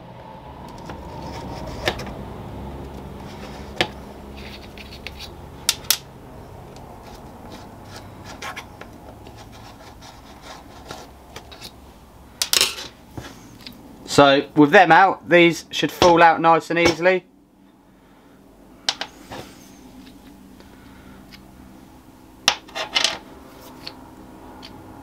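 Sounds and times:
screwdriver scraping steel: 3.2 - 5.4.

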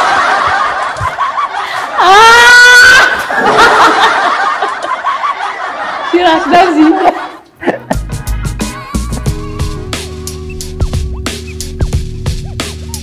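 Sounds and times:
people laughing: 0.0 - 8.1.

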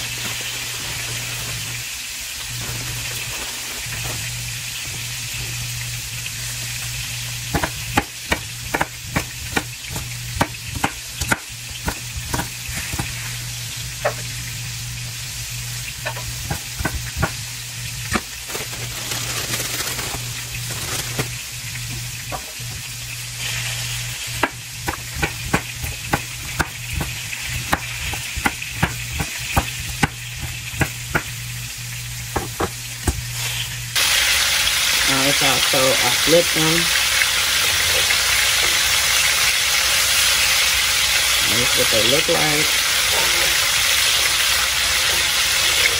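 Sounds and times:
meat sizzling in a pan: 0.0 - 45.9
knife chopping on wooden board: 7.5 - 13.2, 16.1 - 17.4, 24.4 - 31.4, 32.3 - 33.2.

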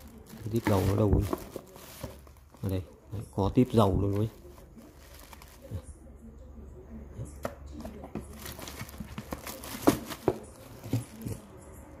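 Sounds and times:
plastic packaging crinkling: 0.0 - 2.9, 3.7 - 5.9, 8.2 - 11.4
plastic packaging clicks and knocks: 0.3 - 2.7, 8.1 - 11.4.

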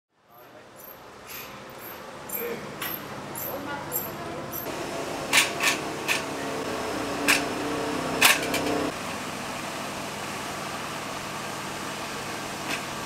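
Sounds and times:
steady whir: 4.6 - 9.0.

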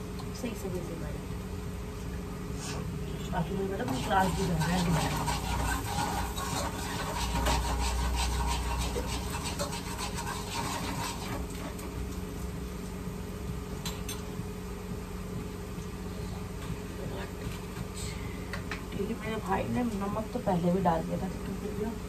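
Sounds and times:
onions frying in oil: 3.5 - 13.8
spatula scraping a pan: 3.7 - 11.9.

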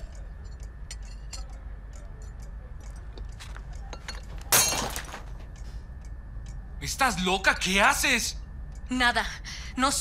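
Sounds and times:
glass crashing on tiled floor: 4.5 - 5.3.

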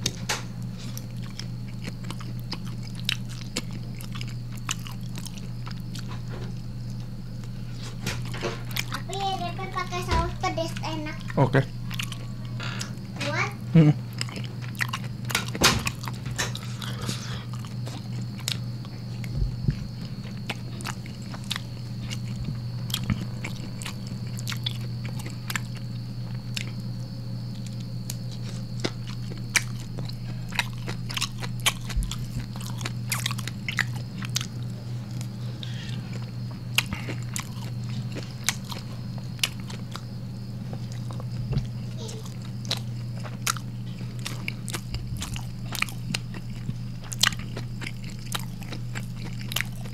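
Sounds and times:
person chewing food: 0.0 - 9.1, 11.0 - 13.1, 13.8 - 49.9
steady low hum: 0.0 - 49.9.

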